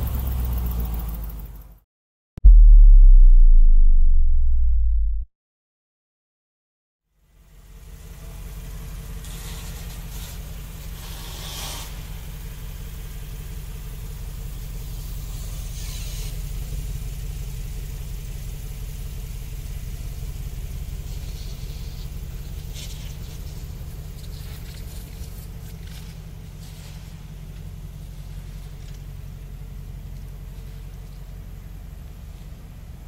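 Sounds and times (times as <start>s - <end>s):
car engine idling: 7.4s - 11.2s, 11.9s - 33.0s.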